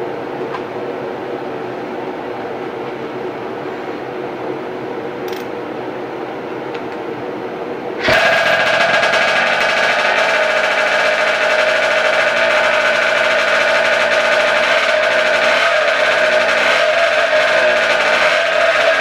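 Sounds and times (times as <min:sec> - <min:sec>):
extraction fan running: 0:00.0 - 0:19.0
cordless drill spinning engine: 0:08.0 - 0:19.0
two-stroke engine firing up: 0:08.0 - 0:19.0.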